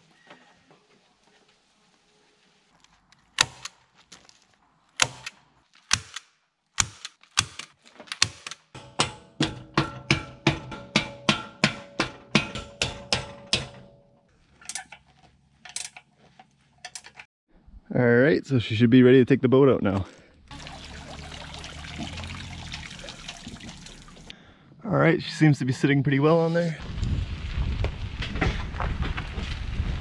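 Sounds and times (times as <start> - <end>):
rubber mallet striking metal: 8.2 - 14.0.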